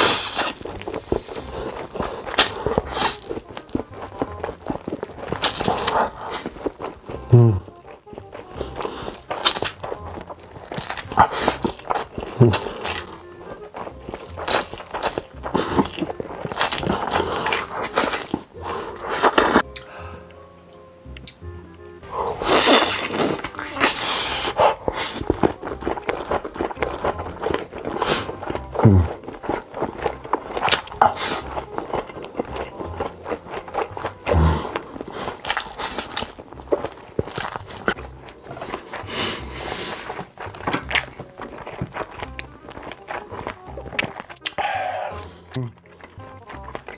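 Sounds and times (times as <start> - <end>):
person slurping noodles: 0.0 - 3.4, 5.0 - 7.7, 10.6 - 20.2, 22.0 - 32.1, 33.1 - 41.2, 44.4 - 45.7
person humming: 0.0 - 10.2, 11.0 - 20.4, 21.1 - 29.3, 34.1 - 35.0, 42.4 - 45.9
mouth clicks: 0.0 - 46.9
person chewing: 0.0 - 46.9.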